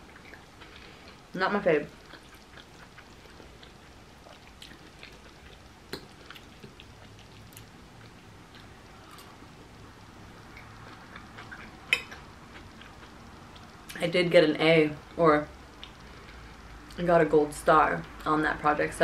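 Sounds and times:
close-up chewing: 0:02.0 - 0:09.4, 0:10.5 - 0:13.9.

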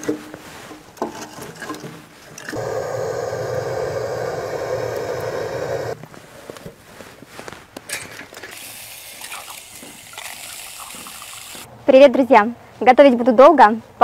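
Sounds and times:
electric blower running: 0:02.5 - 0:06.0.

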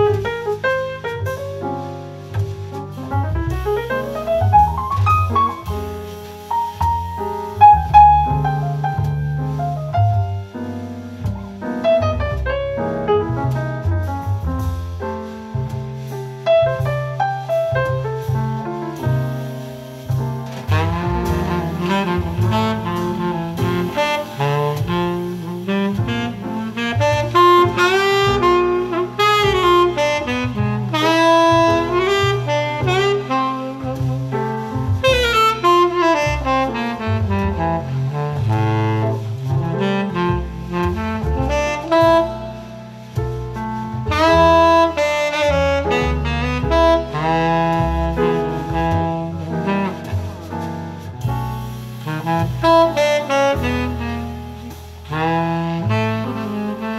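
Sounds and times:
jazz saxophone over loudspeakers: 0:16.6 - 0:56.9.

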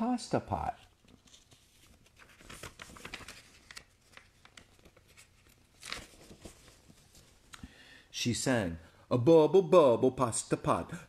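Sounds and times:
paper pages rustling: 0:00.6 - 0:07.5.

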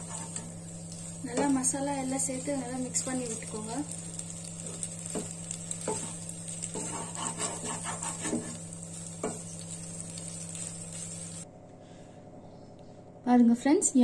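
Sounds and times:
spatula scraping a metal pan: 0:00.0 - 0:00.5, 0:05.7 - 0:09.4
sizzling pan: 0:00.0 - 0:11.4.

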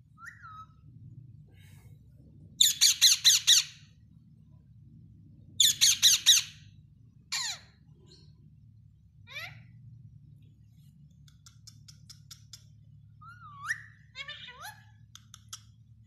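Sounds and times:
parakeets screeching: 0:02.6 - 0:03.9, 0:05.6 - 0:06.7, 0:07.3 - 0:07.9.

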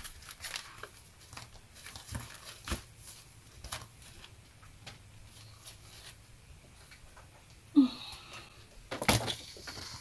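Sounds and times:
paper rustling: 0:00.0 - 0:04.4.

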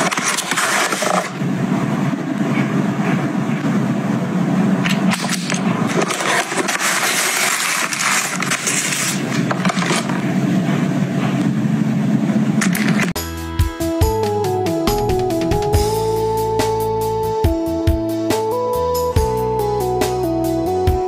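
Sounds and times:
packaging and tissue paper rustling: 0:00.0 - 0:01.4, 0:05.9 - 0:10.2
music with clear notes: 0:13.2 - 0:21.0
steady low rumble: 0:14.8 - 0:17.7.

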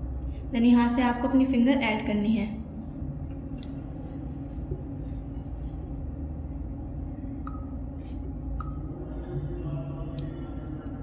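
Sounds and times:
low background hum: 0:00.0 - 0:11.0
faint high blips: 0:07.4 - 0:07.8.

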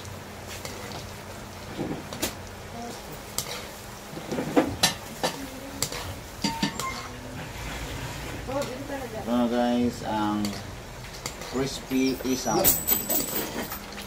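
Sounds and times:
deep-frying sizzle: 0:00.0 - 0:12.6
skimmer clinking against wok: 0:04.8 - 0:07.2.

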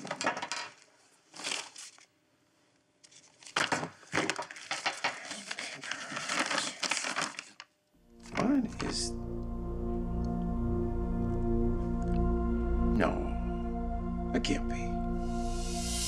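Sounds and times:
small objects set down on desk: 0:00.0 - 0:01.6
handbag contents rustling: 0:01.0 - 0:02.1, 0:03.0 - 0:07.6.

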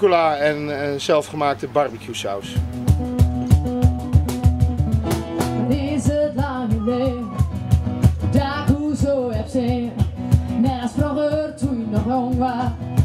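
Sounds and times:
guitar: 0:02.4 - 0:13.0
steady drum beat: 0:02.5 - 0:13.0
person singing: 0:05.6 - 0:13.0.

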